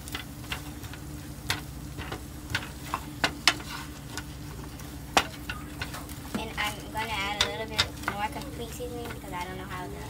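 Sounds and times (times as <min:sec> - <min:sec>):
vegetables sizzling in a skillet: 0:00.0 - 0:10.0
utensil knocking against pan: 0:05.1 - 0:08.4.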